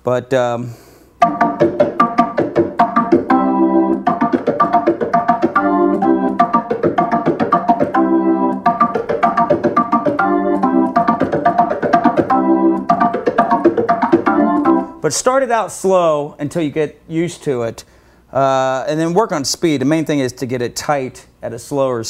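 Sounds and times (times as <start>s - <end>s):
organ playing funk riff: 1.2s - 15.0s.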